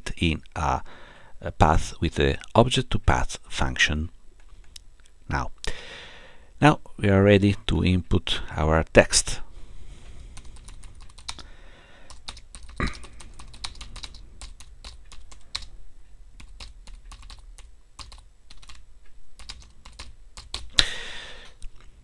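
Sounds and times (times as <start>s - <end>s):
keyboard typing: 10.4s - 11.4s, 12.0s - 15.8s, 16.4s - 18.8s, 19.4s - 20.8s.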